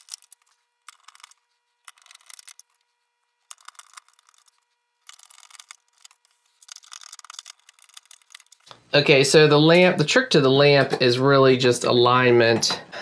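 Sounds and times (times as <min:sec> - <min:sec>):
screwdriver clicking and scraping: 0:00.0 - 0:02.8, 0:03.4 - 0:08.7.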